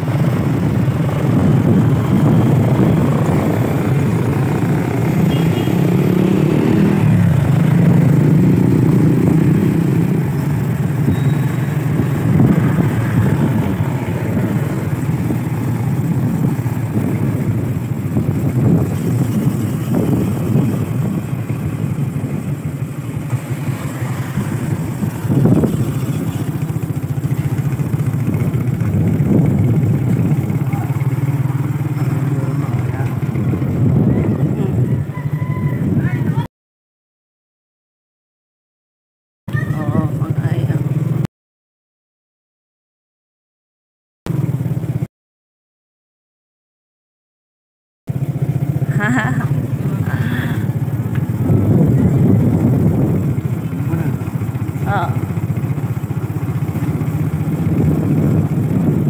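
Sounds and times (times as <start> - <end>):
small motorcycle engine running: 0.0 - 35.3, 48.1 - 59.0.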